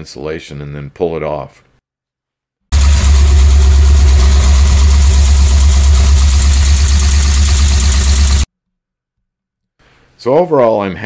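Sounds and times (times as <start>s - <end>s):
car engine idling with clatter: 2.7s - 8.5s.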